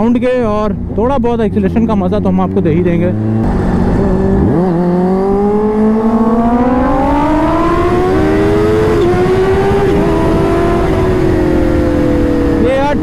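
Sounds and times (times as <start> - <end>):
motorcycle engine accelerating: 0.0 - 13.0
wind noise on microphone: 3.2 - 13.0.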